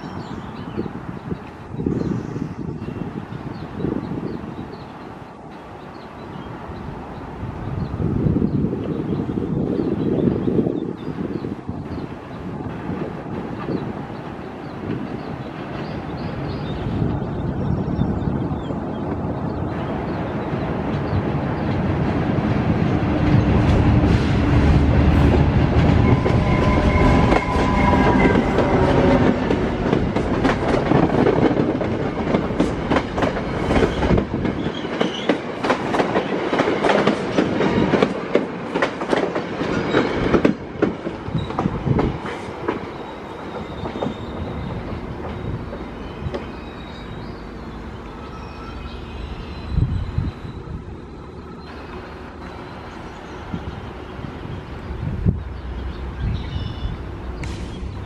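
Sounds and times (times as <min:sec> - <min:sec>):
train rumble: 0:00.0 - 0:58.0
train wheels clattering over rail joints: 0:23.2 - 0:46.5.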